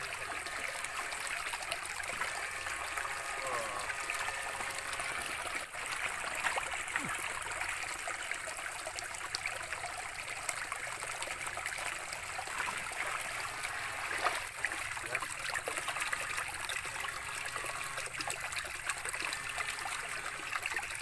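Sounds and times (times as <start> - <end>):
stream trickling over rocks: 0.0 - 21.0
splashing of wading in boots: 14.0 - 14.5.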